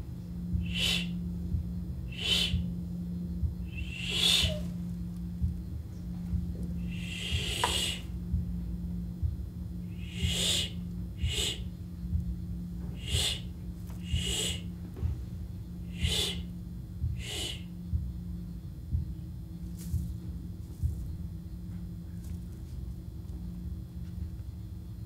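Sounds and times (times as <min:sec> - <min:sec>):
steady low hum: 0:00.0 - 0:25.0
barn owl screeching: 0:00.6 - 0:01.2, 0:02.1 - 0:02.7, 0:03.6 - 0:04.9, 0:06.8 - 0:08.2, 0:09.9 - 0:11.8, 0:12.9 - 0:14.7, 0:15.8 - 0:16.5, 0:17.1 - 0:17.7.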